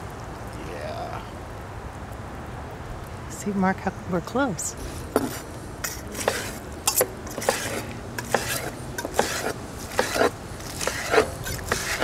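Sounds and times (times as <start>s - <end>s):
knife slicing steak: 5.2s - 12.0s
knife and fork tapping a board: 6.2s - 10.3s.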